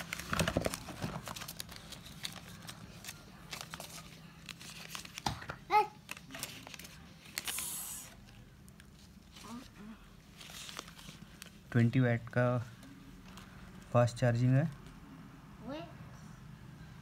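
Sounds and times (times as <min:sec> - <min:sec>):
cardboard box and paper rustling: 0:00.0 - 0:05.4.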